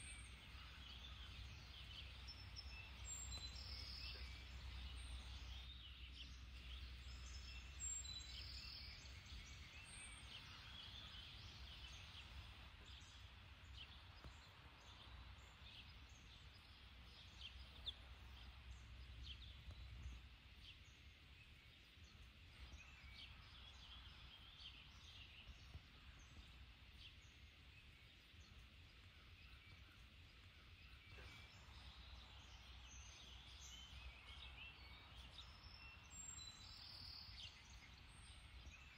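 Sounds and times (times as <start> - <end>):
small bird chirps: 0.0 - 38.9.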